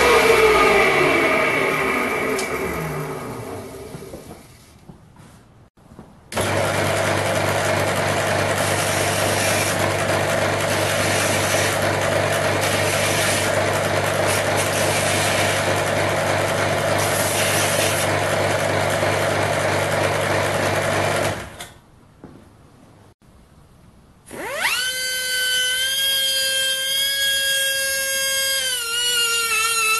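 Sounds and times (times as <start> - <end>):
belt sander motor hum: 0.0 - 4.5, 6.4 - 21.5.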